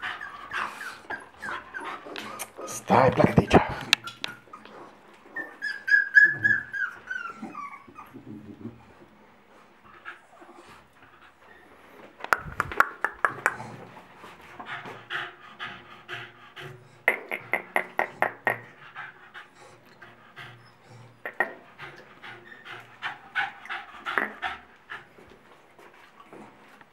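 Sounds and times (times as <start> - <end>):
dog whining: 0.0 - 2.8, 3.4 - 8.6
dog panting: 0.0 - 26.9.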